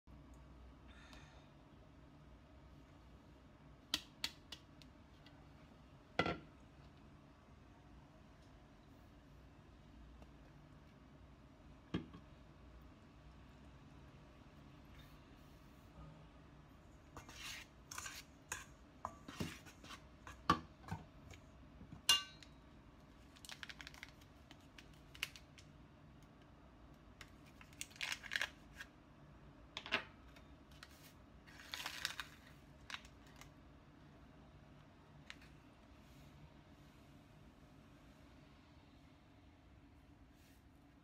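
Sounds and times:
metal spoon scraping steel bowl: 0:17.2 - 0:19.9
packet crinkling: 0:23.2 - 0:25.7, 0:27.2 - 0:28.8, 0:31.5 - 0:33.5.

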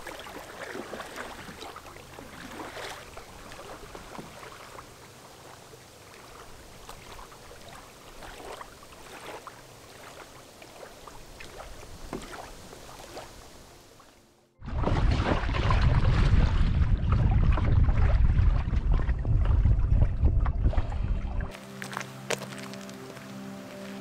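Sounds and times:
small waves lapping on sand: 0:00.0 - 0:14.2.

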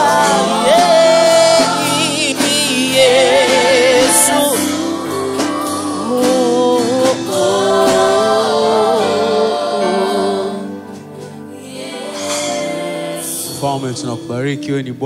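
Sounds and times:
man singing gospel: 0:00.0 - 0:10.7, 0:12.0 - 0:15.0
keyboard accompaniment: 0:00.0 - 0:15.0.

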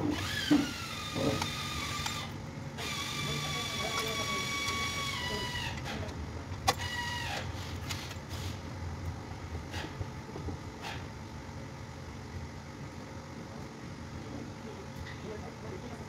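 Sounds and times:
power tool motor whining: 0:00.0 - 0:06.0, 0:06.6 - 0:08.0
steady low hum: 0:00.0 - 0:16.0.

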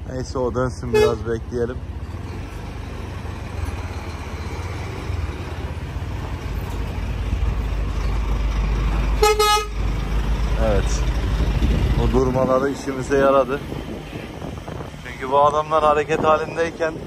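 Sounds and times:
diesel truck engine rumbling: 0:00.0 - 0:17.0
truck horn toot: 0:00.9 - 0:01.3, 0:09.2 - 0:09.9.

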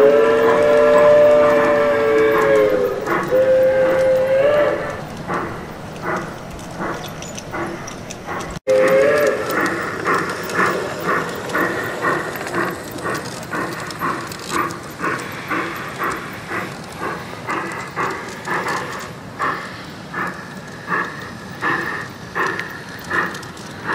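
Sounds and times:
model train whistle blast: 0:00.0 - 0:05.0, 0:08.7 - 0:09.5
steady rhythmic train beat: 0:00.0 - 0:23.9.

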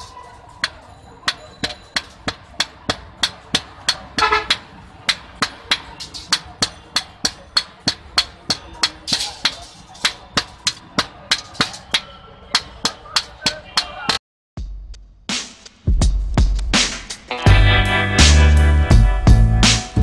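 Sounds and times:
hammers striking metal on anvil: 0:00.0 - 0:14.0.

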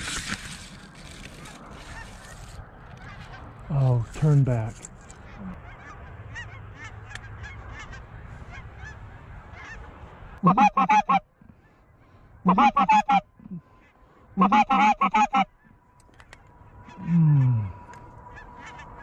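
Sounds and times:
goose call squeaky clucks: 0:01.3 - 0:03.6, 0:05.1 - 0:09.8, 0:10.4 - 0:11.7, 0:12.5 - 0:13.7, 0:14.4 - 0:17.6, 0:18.2 - 0:19.0
distant geese honking: 0:01.3 - 0:03.8, 0:05.1 - 0:19.0.

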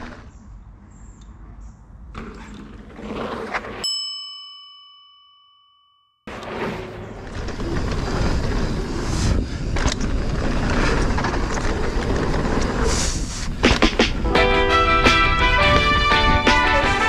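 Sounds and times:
tyre and wind noise: 0:06.3 - 0:17.0
bike clattering: 0:06.4 - 0:14.2.

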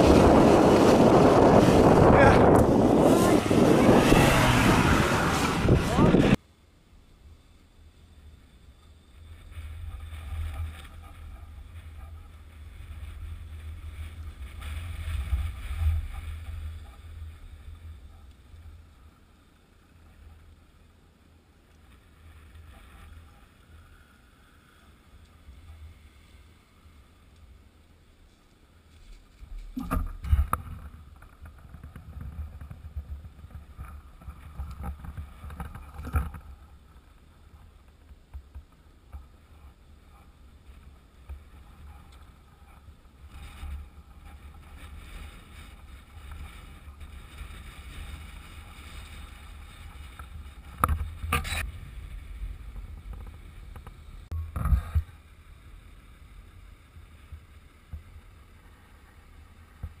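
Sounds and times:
wind buffeting microphone: 0:00.0 - 0:06.4.

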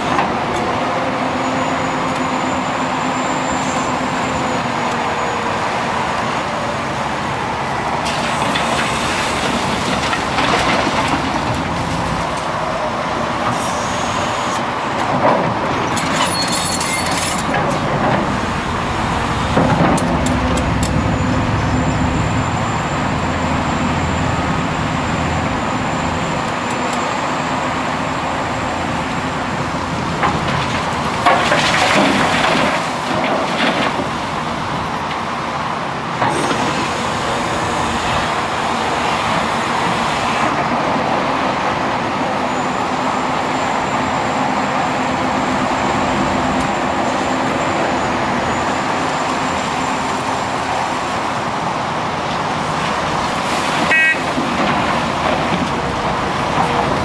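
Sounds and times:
excavator diesel engine: 0:00.0 - 0:57.0
metal clanks and scraping: 0:15.9 - 0:18.3.

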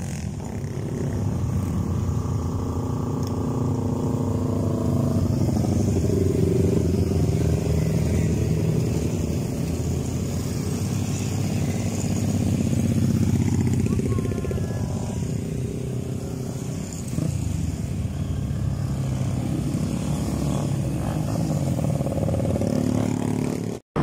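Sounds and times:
motorcycles riding past: 0:00.0 - 0:24.0.

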